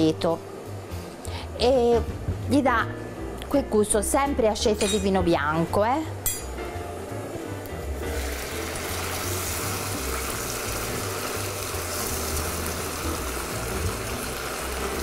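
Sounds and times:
broth simmering and sizzling: 0:05.8 - 0:15.0.

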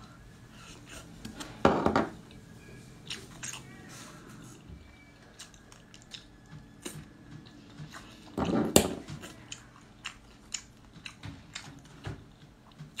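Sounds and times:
person chewing: 0:03.0 - 0:03.8, 0:04.4 - 0:13.0.

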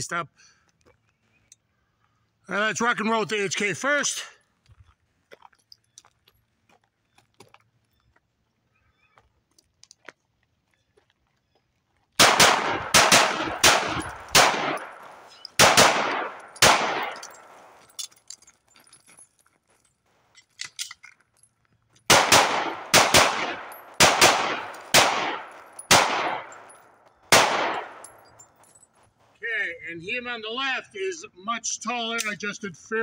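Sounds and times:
pistol shots with echo: 0:12.2 - 0:17.8, 0:22.1 - 0:28.4.

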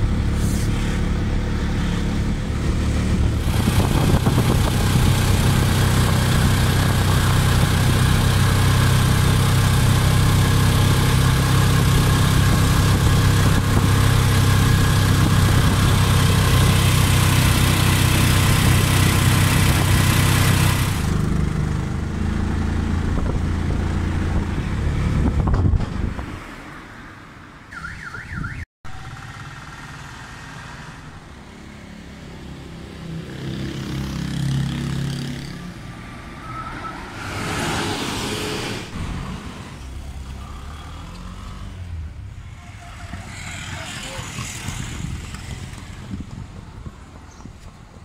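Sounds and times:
vehicle rushing past: 0:00.0 - 0:08.8, 0:28.9 - 0:46.8
vehicle engine running close by: 0:00.0 - 0:26.2, 0:28.9 - 0:36.0, 0:37.3 - 0:48.0
street traffic: 0:00.0 - 0:48.0.

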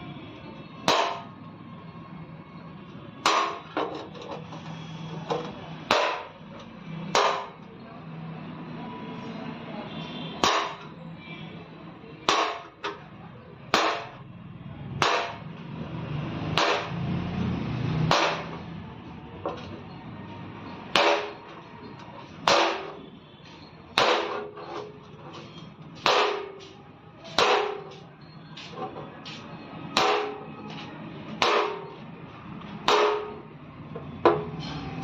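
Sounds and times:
hammer knocking on sheet metal: 0:05.9 - 0:06.3, 0:24.0 - 0:24.5, 0:26.0 - 0:26.6, 0:27.3 - 0:28.0, 0:30.0 - 0:30.4, 0:31.4 - 0:31.9, 0:32.8 - 0:33.4.

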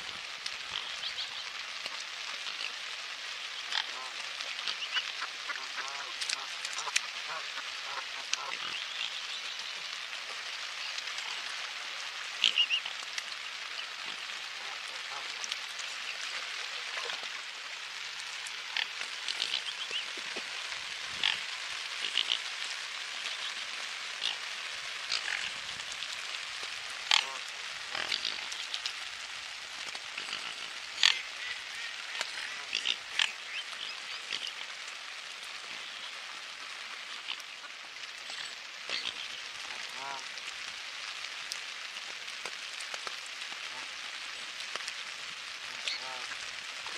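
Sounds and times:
rain on lake surface: 0:00.0 - 0:46.9
birds feeding sharp sounds: 0:18.7 - 0:20.2.

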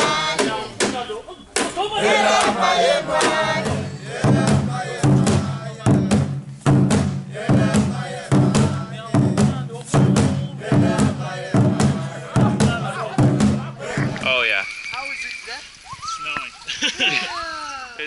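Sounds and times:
music with steady drumbeat: 0:00.0 - 0:01.0, 0:01.6 - 0:14.2
voices chanting: 0:00.0 - 0:06.4, 0:07.2 - 0:14.6
voices shouting: 0:01.8 - 0:05.1.

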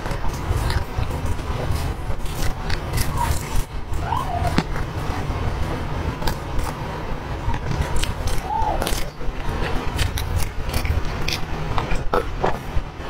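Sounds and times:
chewing clicks and smacks: 0:00.0 - 0:03.7, 0:07.5 - 0:12.6
steady low rumble: 0:00.0 - 0:13.0.

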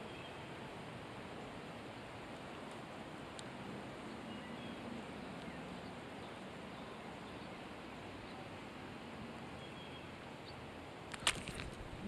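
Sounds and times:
faint bird chirps: 0:00.0 - 0:00.6, 0:04.2 - 0:08.5, 0:09.6 - 0:10.6
faint steady hiss: 0:00.0 - 0:12.0.

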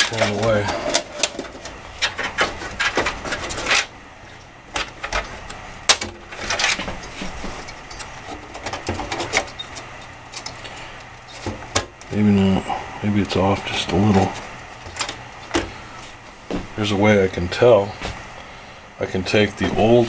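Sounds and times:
motherboard knocking in metal case: 0:08.4 - 0:09.5.

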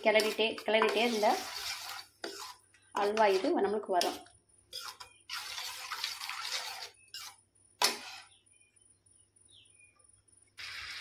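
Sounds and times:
spoon stirring in a steel pan: 0:00.0 - 0:08.3.

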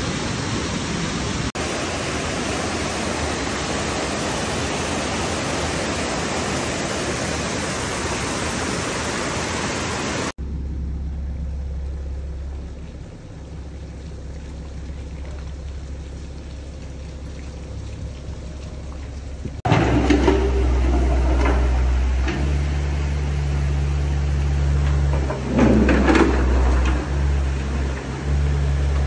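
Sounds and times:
floodwater torrent rushing: 0:00.0 - 0:10.4, 0:12.2 - 0:29.0
low rumble: 0:10.4 - 0:29.0.

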